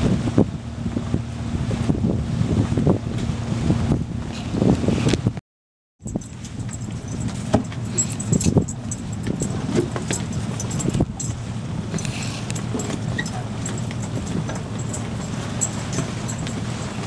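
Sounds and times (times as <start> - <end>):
clinks and knocks: 6.0 - 17.0
water rushing: 6.2 - 17.0.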